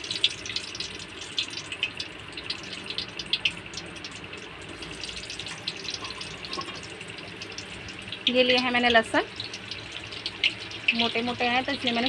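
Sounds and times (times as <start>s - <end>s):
onion sizzling in hot oil: 0.0s - 12.0s.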